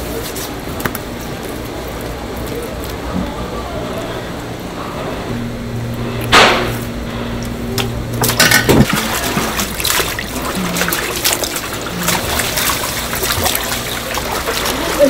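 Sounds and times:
water sloshing in a plastic tub: 0:07.8 - 0:15.0
short splashes and knocks: 0:08.2 - 0:15.0.

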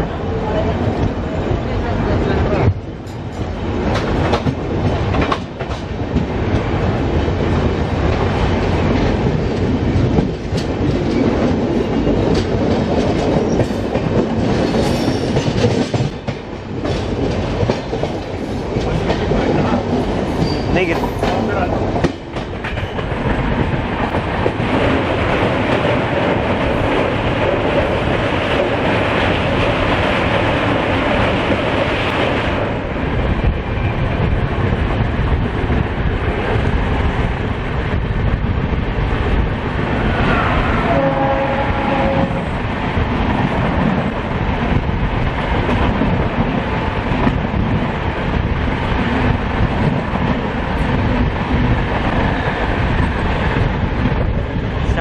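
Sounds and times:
train wheels clattering: 0:02.6 - 0:06.8, 0:08.0 - 0:32.6
rushing air: 0:16.4 - 0:55.0
train horn: 0:40.4 - 0:42.4.

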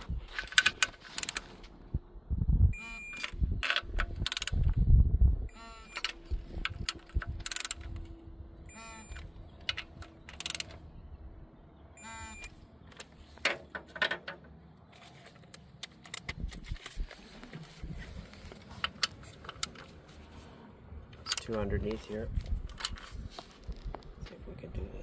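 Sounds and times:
socket wrench ratcheting: 0:00.4 - 0:01.6, 0:03.1 - 0:04.7, 0:05.8 - 0:08.1, 0:09.0 - 0:10.8.

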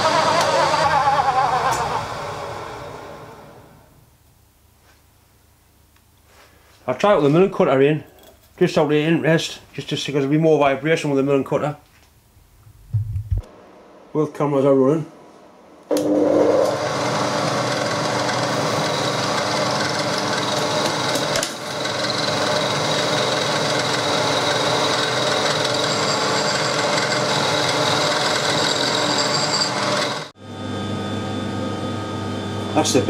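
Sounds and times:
end mill grinding metal: 0:00.0 - 0:03.7, 0:15.9 - 0:30.3.

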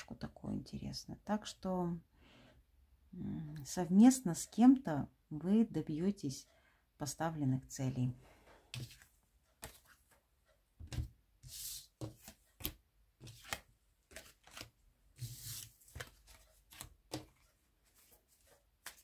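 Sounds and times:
cards being shuffled: 0:08.8 - 0:10.2, 0:10.9 - 0:19.0.

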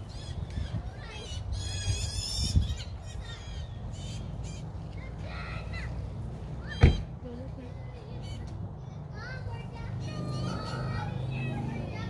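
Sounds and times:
harsh bird squawks: 0:00.0 - 0:05.9, 0:08.2 - 0:08.5
thump: 0:06.8 - 0:07.1.

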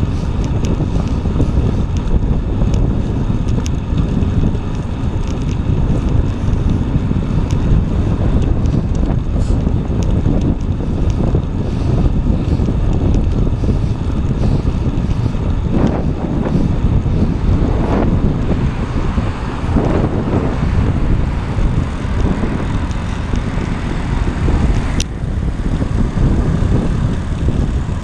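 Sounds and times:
wind buffeting microphone: 0:00.0 - 0:28.0
faint ticks: 0:00.2 - 0:16.6.

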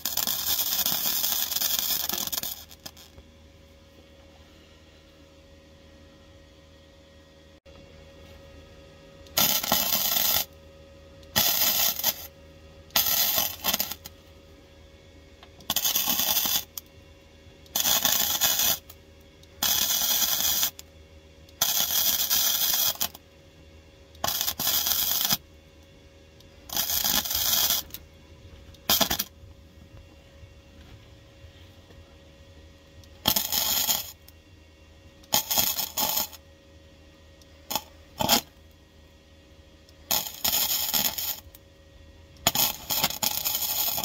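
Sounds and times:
welder arc crackling: 0:00.0 - 0:03.3, 0:09.2 - 0:10.6, 0:11.2 - 0:14.2, 0:15.4 - 0:17.0, 0:17.6 - 0:20.9, 0:21.5 - 0:23.2, 0:24.1 - 0:30.1, 0:32.9 - 0:34.4, 0:35.2 - 0:36.4, 0:37.4 - 0:38.7, 0:39.9 - 0:41.6, 0:42.4 - 0:44.0.

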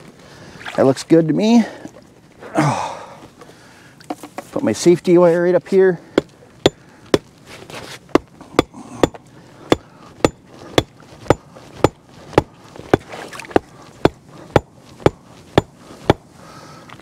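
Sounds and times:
hatchet striking a stake: 0:06.2 - 0:07.3, 0:08.1 - 0:16.3.

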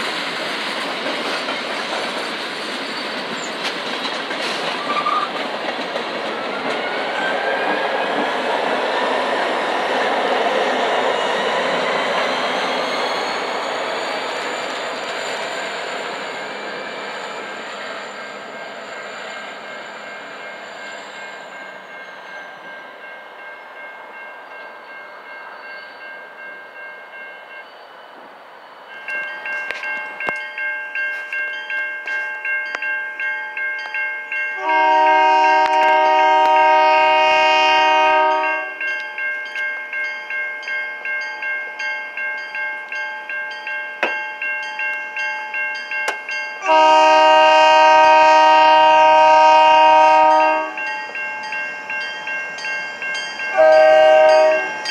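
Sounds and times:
freight train rolling: 0:00.0 - 0:54.9
crossing bell ringing: 0:10.6 - 0:27.9, 0:28.8 - 0:54.9
locomotive horn: 0:34.6 - 0:38.8, 0:46.6 - 0:50.8, 0:53.5 - 0:54.8.

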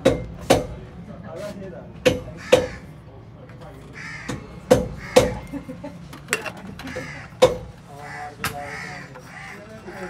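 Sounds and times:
sharp metallic knocks: 0:00.0 - 0:00.8, 0:02.0 - 0:02.8, 0:04.2 - 0:05.4, 0:06.4 - 0:07.8
low workshop background: 0:00.0 - 0:10.0.

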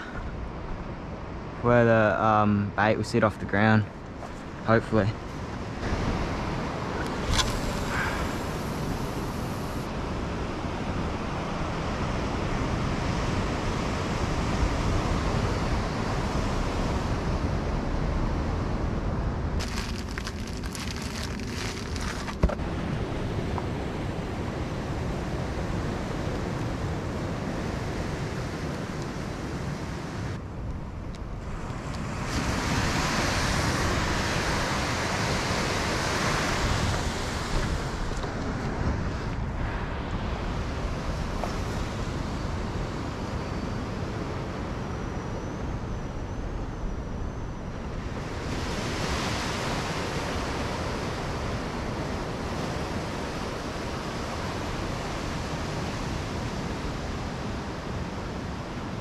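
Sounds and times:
wind on camera microphone: 0:04.0 - 0:59.0
surf breaking on rocks: 0:19.6 - 0:23.0.

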